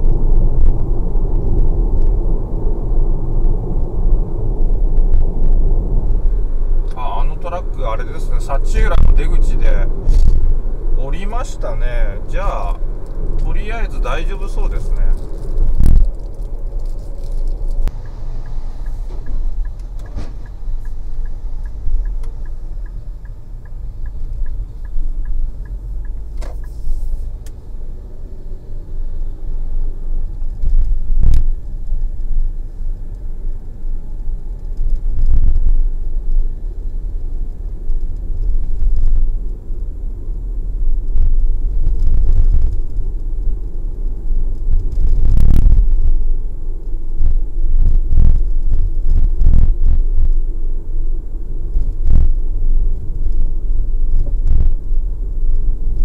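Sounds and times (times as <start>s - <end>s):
car road and engine rumble: 0.0s - 56.0s
thumps from road bumps: 14.8s - 27.6s, 51.6s - 56.0s.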